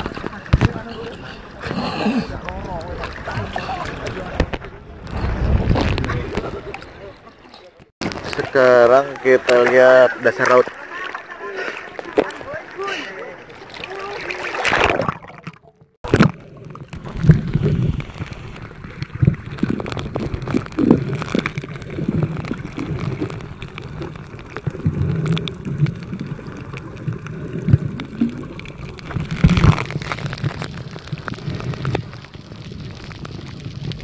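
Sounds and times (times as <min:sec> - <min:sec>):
underwater clicks and crackles: 0:00.0 - 0:34.0
muffled underwater rumble: 0:15.0 - 0:34.0.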